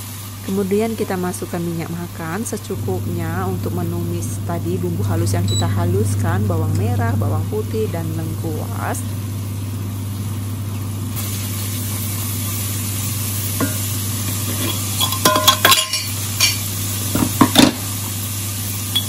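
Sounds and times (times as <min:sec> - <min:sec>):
paste sizzling in oil: 0:09.1 - 0:19.0.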